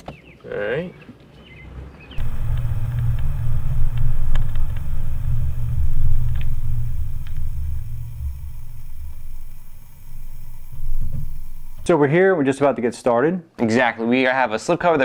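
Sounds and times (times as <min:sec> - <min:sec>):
car rolling over pavement: 0:02.2 - 0:11.9
light ticks: 0:02.2 - 0:11.9.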